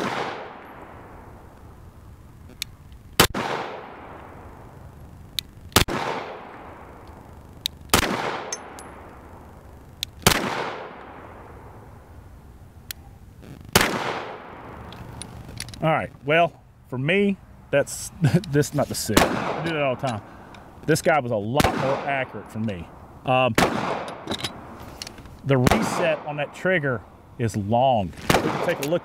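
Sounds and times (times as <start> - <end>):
pistol shots echoing: 0.0 - 1.2, 3.2 - 4.6, 5.8 - 7.0, 7.9 - 9.4, 10.2 - 11.8, 13.7 - 14.9, 19.2 - 20.3, 21.6 - 22.4, 23.6 - 24.7, 25.6 - 26.6, 28.3 - 29.0.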